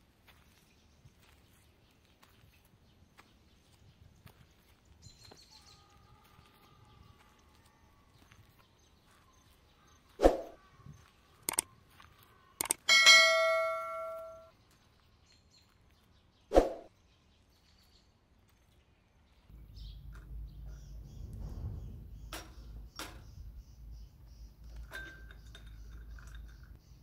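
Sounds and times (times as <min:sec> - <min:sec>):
clicks: 0:11.5 - 0:11.7, 0:12.6 - 0:14.4
bell ding: 0:12.9 - 0:14.5.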